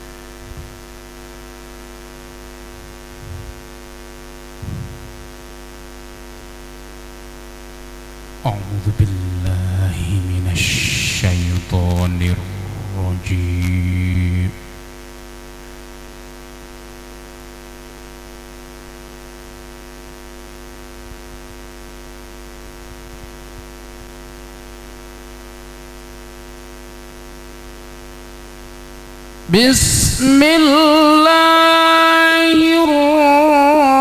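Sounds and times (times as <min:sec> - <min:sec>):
electrical mains hum: 0:00.0 - 0:34.0
man reciting melodically: 0:08.4 - 0:14.9, 0:29.5 - 0:34.0.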